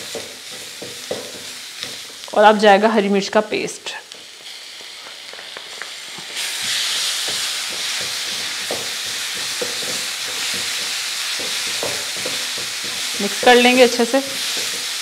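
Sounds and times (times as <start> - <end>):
masala sizzling in a wok: 0.0 - 15.0
wooden spatula scraping a pan: 6.2 - 15.0.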